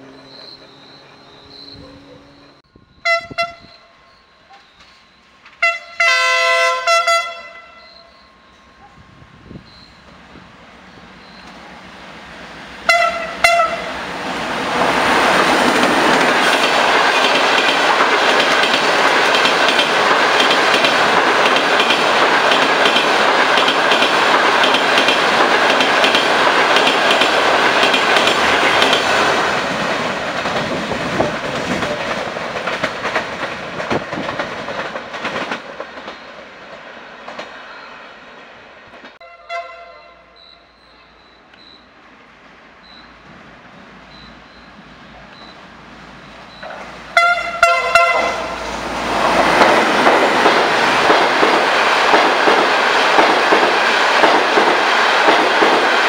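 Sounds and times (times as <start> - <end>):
train horn blasts: 0.0 - 4.0, 5.6 - 8.6, 12.8 - 14.0, 39.2 - 41.2, 47.1 - 48.6
train rushing past: 0.0 - 56.0
wheels clacking over rail joints: 12.9 - 37.9, 46.4 - 56.0.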